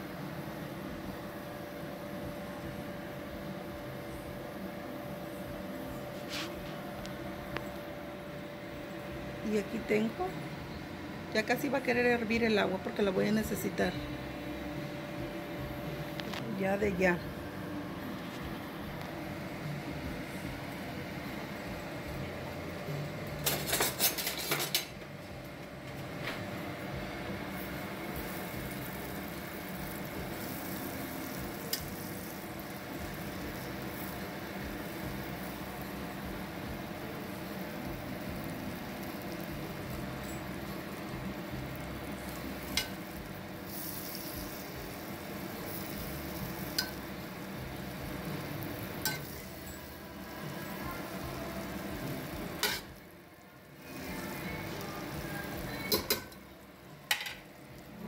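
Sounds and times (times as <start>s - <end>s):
butter sizzling and bubbling: 25.7s - 58.0s
metal utensil clinking on pot: 52.6s - 52.9s, 55.9s - 56.4s.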